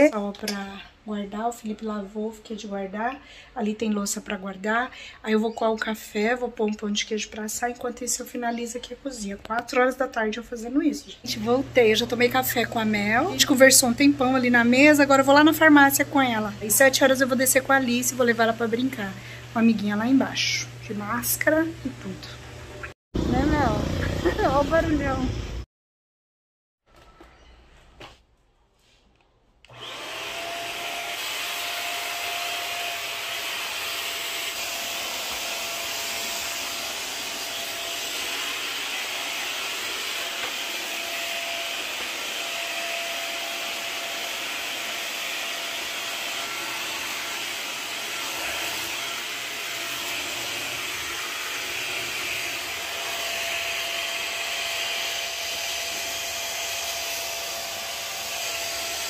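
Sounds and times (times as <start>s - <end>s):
steam mop motor whining: 29.7s - 59.0s.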